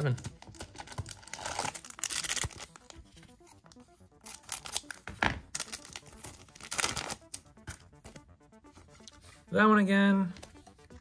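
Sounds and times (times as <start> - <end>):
wrapper tearing and crinkling: 0.0 - 3.0, 4.2 - 7.4.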